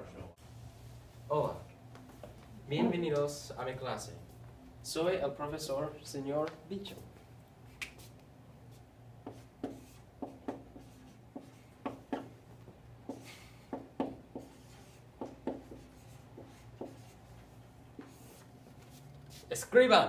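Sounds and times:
low steady hum: 0.0s - 19.4s
chalk tapping and scraping on board: 9.2s - 12.3s, 13.0s - 19.5s.

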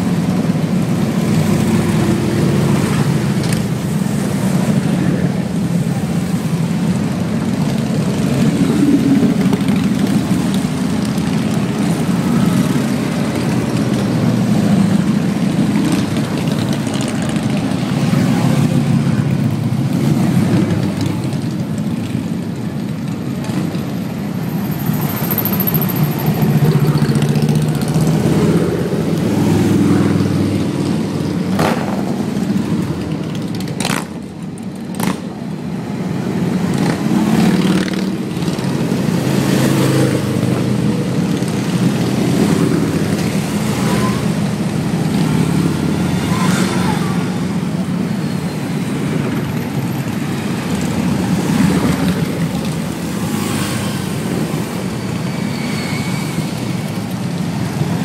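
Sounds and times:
motorcycles riding past: 36.2s - 58.0s.

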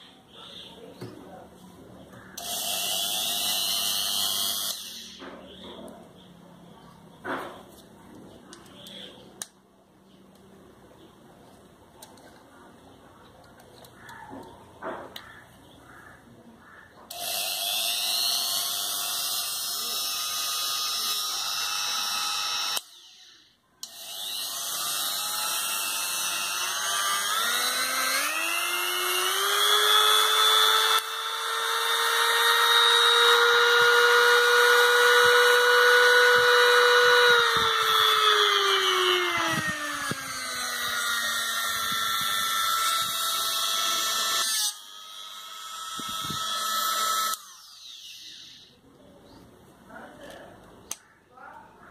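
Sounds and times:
rotary grinder whining: 2.0s - 6.0s, 13.8s - 48.9s.

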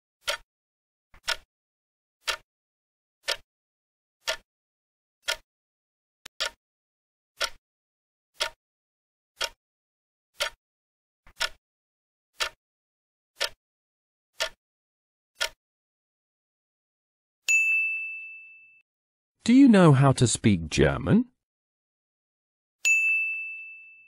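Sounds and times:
clock ticking: 0.2s - 0.4s, 1.2s - 1.5s, 2.2s - 2.4s, 3.2s - 3.4s, 4.2s - 4.5s, 5.2s - 5.5s, 6.4s - 6.6s, 7.4s - 7.6s, 8.4s - 8.6s, 9.4s - 9.6s, 10.4s - 10.6s, 11.3s - 11.6s, 12.4s - 12.6s, 13.4s - 13.6s, 14.4s - 14.6s, 15.4s - 15.6s
bell ding: 17.5s - 18.8s, 22.9s - 24.0s.

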